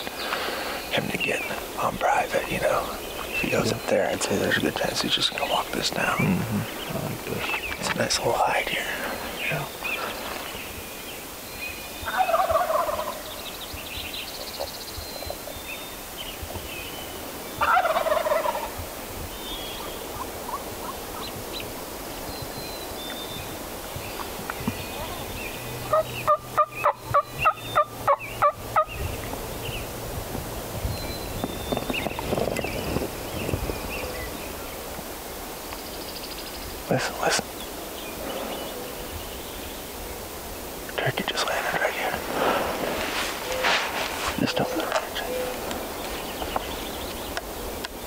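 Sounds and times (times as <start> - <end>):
turkey yelps: 12.0 - 13.2, 17.6 - 18.8, 25.9 - 28.9
turkey gobbling: 12.0 - 13.3, 17.6 - 18.8, 19.7 - 21.6, 25.9 - 29.0.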